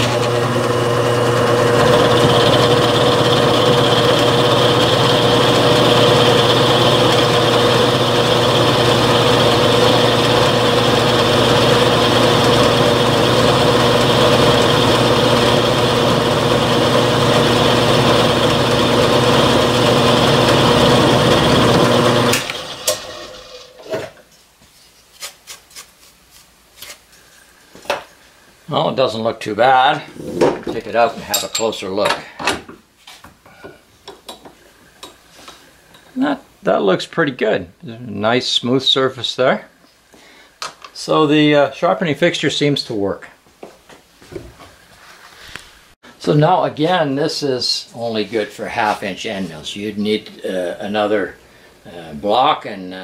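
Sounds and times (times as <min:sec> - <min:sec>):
milling machine cutting metal: 0:00.0 - 0:23.7.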